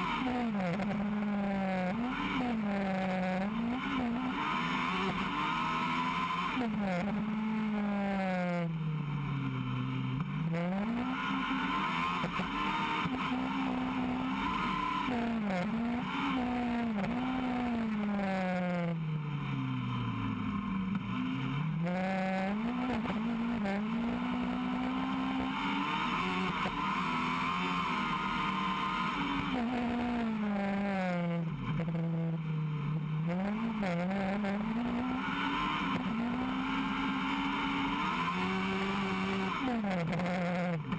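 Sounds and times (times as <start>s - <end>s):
wind and road noise: 0.0s - 40.9s
race car engine revving: 33.2s - 40.9s.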